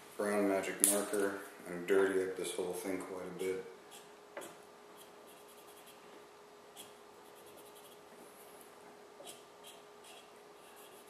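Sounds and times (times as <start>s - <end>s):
marker scratching on foam: 5.0s - 6.0s, 6.8s - 8.1s, 9.2s - 11.0s.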